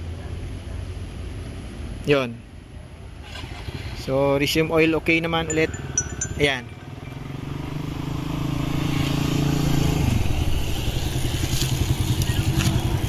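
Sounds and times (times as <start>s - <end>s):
motorcycle engine running: 6.8s - 13.0s.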